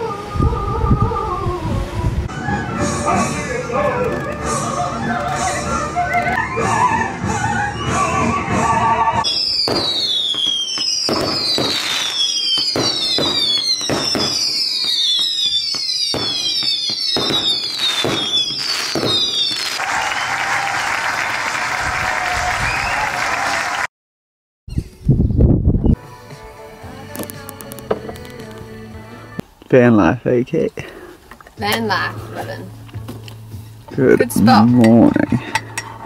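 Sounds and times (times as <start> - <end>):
music: 0.0 - 9.3, 24.7 - 29.4, 31.6 - 36.0
falling firework whistles: 4.6 - 20.9
firework bangs: 9.2 - 20.1.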